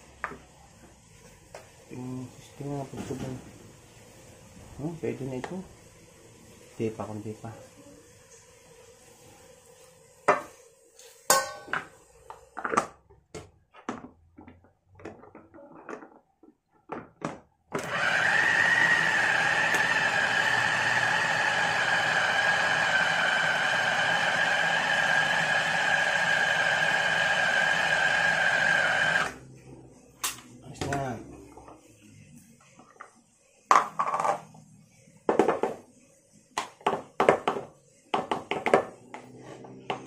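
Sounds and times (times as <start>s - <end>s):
food chopper motor whine: 17.7s - 29.4s.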